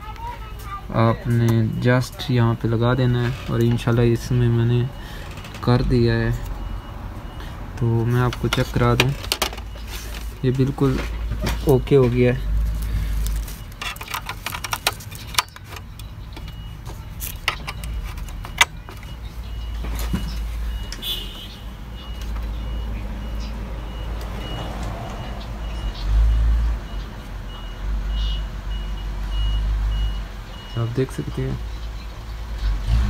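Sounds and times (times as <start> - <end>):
cable handling clicks and knocks: 7.8 - 12.3, 13.2 - 19.2.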